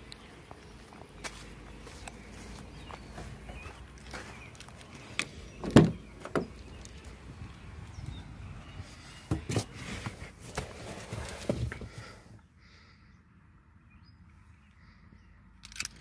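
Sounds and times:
car door opening clunk: 5.5s - 6.8s
handling knocks: 5.6s - 6.8s.

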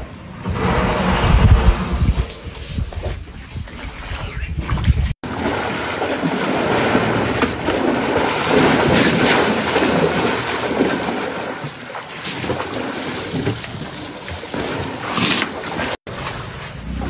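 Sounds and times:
water splashing and sloshing: 0.0s - 17.0s
wind buffeting microphone: 0.4s - 5.2s.

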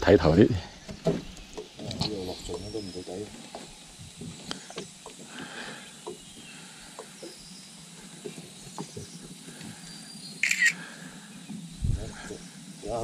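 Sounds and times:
phone camera shutter click: 10.4s - 10.8s.

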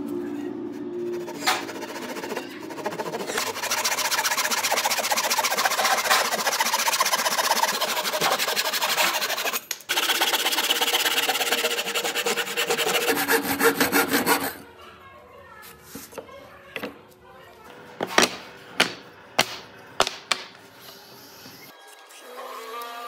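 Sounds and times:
handsaw cutting wood: 1.0s - 14.6s.

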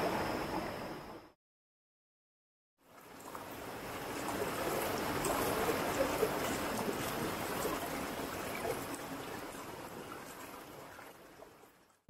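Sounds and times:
river flowing over stones: 3.1s - 10.8s.

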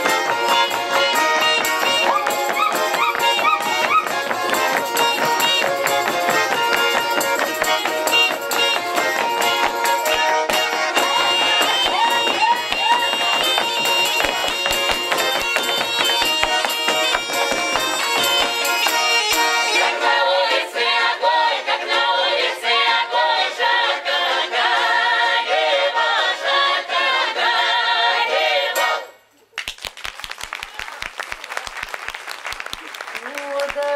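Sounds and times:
accordion: 0.0s - 29.2s
chorus singing folk song: 0.0s - 29.2s
audience applause: 11.0s - 19.3s, 29.6s - 33.9s.

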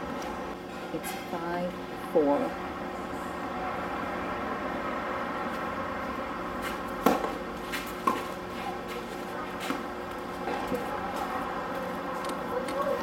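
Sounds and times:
tennis ball knocks on court: 7.0s - 7.4s.

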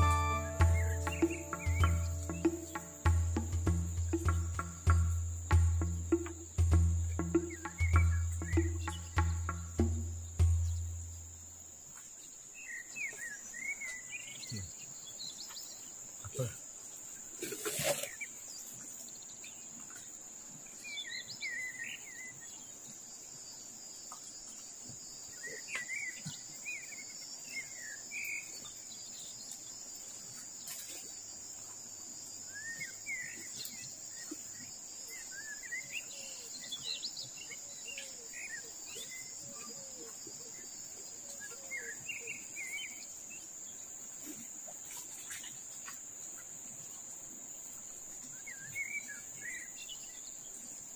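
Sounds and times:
short low notes: 0.0s - 11.3s
birds chirping: 0.0s - 11.5s
insects droning: 0.0s - 50.9s.

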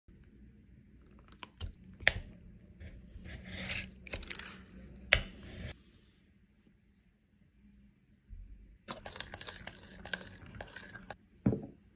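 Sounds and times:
utensils scraping: 3.2s - 5.8s.

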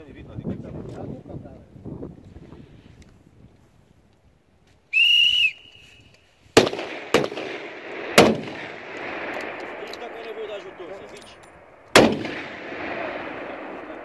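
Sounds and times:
high whistle blast: 4.9s - 6.2s
rifle shots with echo: 6.6s - 14.0s.

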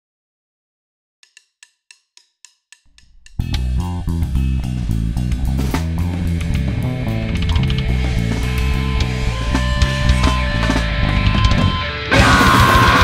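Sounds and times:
bass guitar: 2.9s - 13.0s
low bass note: 3.0s - 11.9s
drum kit: 3.0s - 13.0s
distorted electric guitar: 3.1s - 13.0s.

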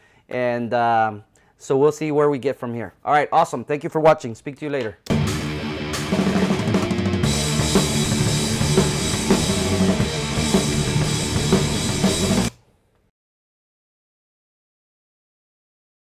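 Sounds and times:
metal band playing: 5.1s - 12.5s
drum kit kick and cymbals: 5.1s - 12.6s.

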